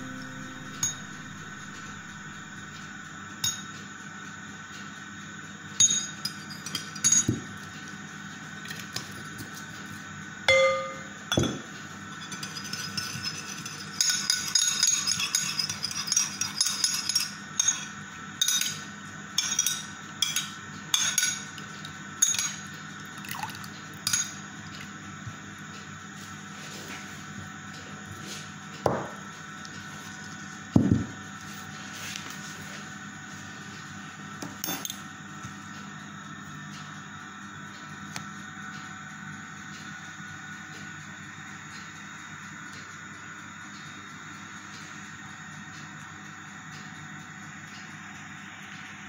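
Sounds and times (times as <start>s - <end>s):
metal spoon clinking ceramic bowl: 10.5s - 11.6s, 12.2s - 18.8s, 19.4s - 21.6s, 22.2s - 22.6s, 23.2s - 24.4s.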